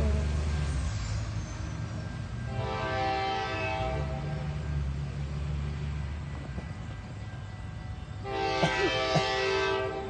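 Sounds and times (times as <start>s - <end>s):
distant train rumble: 0.0s - 10.0s
locomotive air horn chord: 2.5s - 4.5s, 8.2s - 10.0s.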